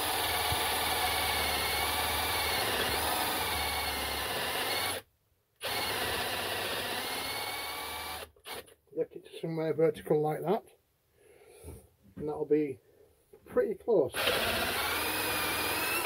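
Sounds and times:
electric drill boring into metal: 0.0s - 5.0s, 5.6s - 8.7s, 14.2s - 16.0s.

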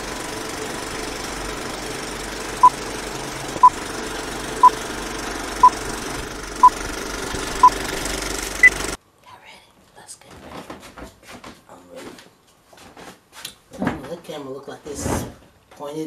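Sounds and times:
film projector hiss and rattle: 0.0s - 9.0s.

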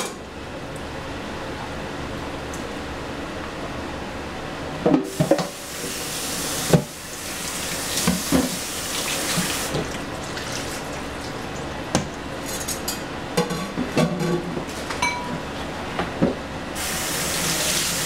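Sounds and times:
tap running into sink: 7.9s - 10.0s.

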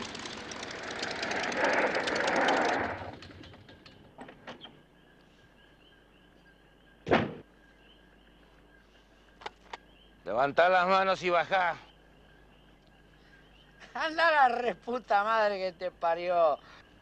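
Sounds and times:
propeller plane engine running: 0.0s - 4.6s
insects chirping: 0.0s - 17.0s
loud thump: 7.1s - 7.5s.

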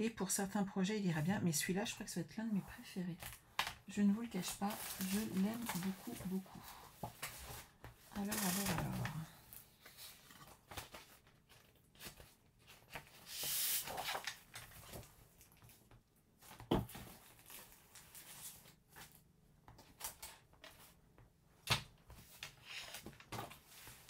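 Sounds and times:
paper rustling and sliding: 9.7s - 15.1s.

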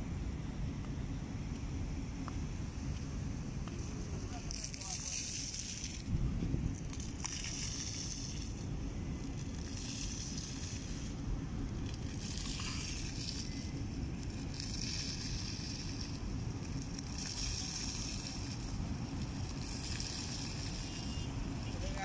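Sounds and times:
steady low rumble: 0.0s - 22.0s
hiss: 6.9s - 8.7s, 9.5s - 22.0s.

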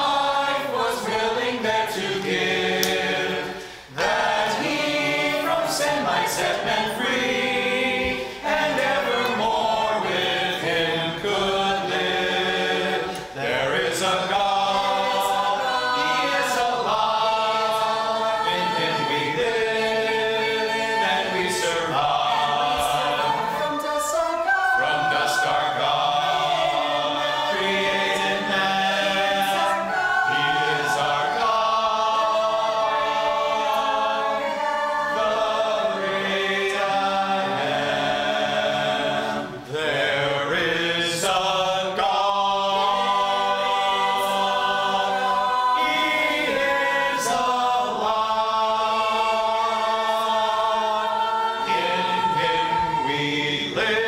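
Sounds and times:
congregation singing a hymn: 0.0s - 54.0s.

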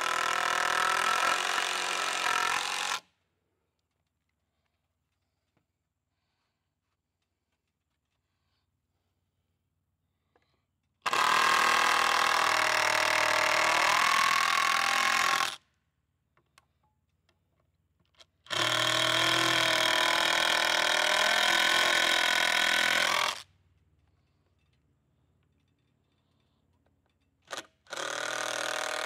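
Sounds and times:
power drill drilling into wood: 0.0s - 3.0s, 11.1s - 15.6s, 18.5s - 23.4s, 27.5s - 29.0s.

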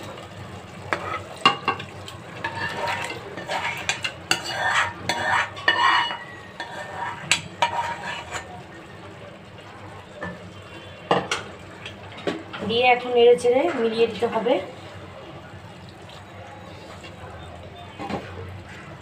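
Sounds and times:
light sizzle: 0.0s - 19.0s
spoon scraping and clinking: 2.4s - 8.6s.

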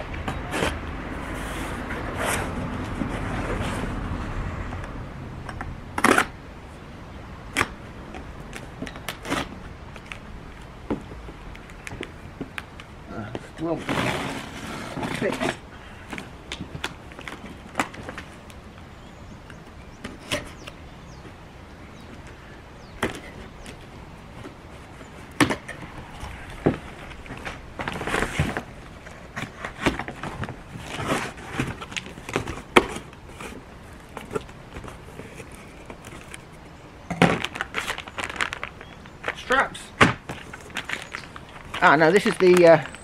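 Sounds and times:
cardboard tearing and rustling: 13.8s - 18.5s, 23.0s - 36.5s, 37.2s - 43.0s
cardboard knocking and scraping: 26.6s - 36.4s
plastic wrapping rustling: 37.2s - 43.0s.

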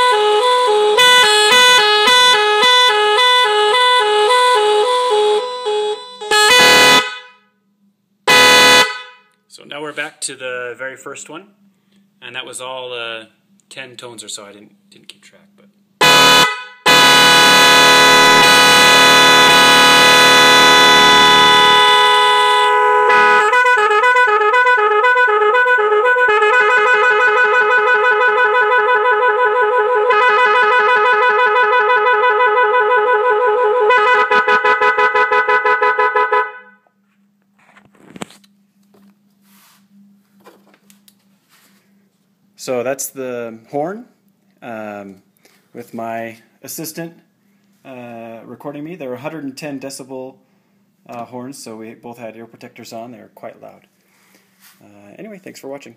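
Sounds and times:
warbling horn patterns: 0.0s - 7.4s, 8.3s - 9.3s, 16.0s - 36.8s
electric car horn chord: 0.0s - 7.6s, 8.3s - 9.4s, 16.0s - 37.0s.

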